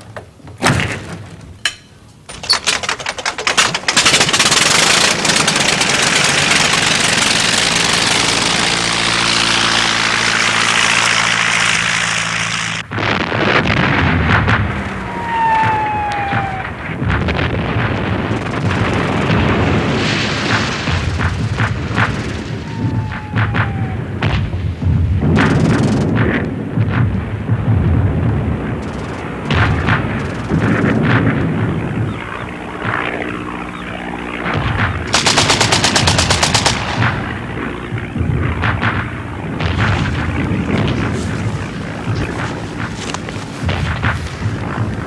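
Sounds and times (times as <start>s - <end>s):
machine-gun burst: 2.4s - 12.0s, 12.8s - 24.5s, 25.2s - 26.4s, 28.7s - 31.6s, 34.6s - 42.9s
shell explosions: 12.8s - 45.0s
gunshots: 12.9s - 32.2s, 34.4s - 45.0s
falling whistle: 15.0s - 16.9s, 22.6s - 24.1s.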